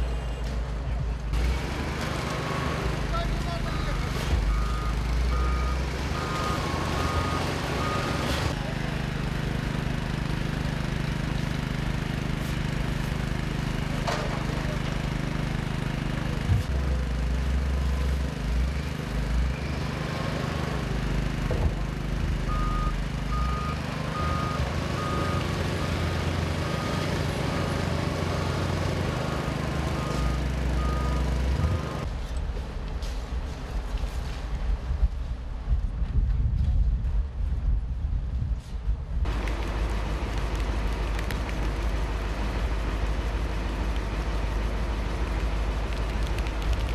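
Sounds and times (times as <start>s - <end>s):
diesel engine humming: 0.0s - 32.2s, 39.2s - 46.9s
reversing alarm beeping: 3.7s - 8.4s, 22.5s - 26.0s, 29.3s - 32.0s.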